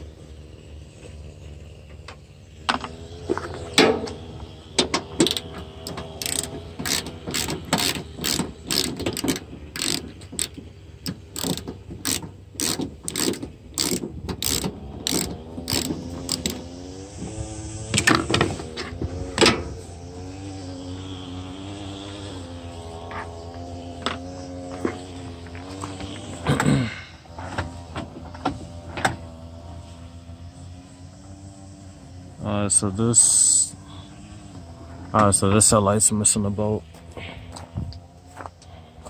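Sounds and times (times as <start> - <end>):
ratchet wrench clicking: 5.0 - 16.7.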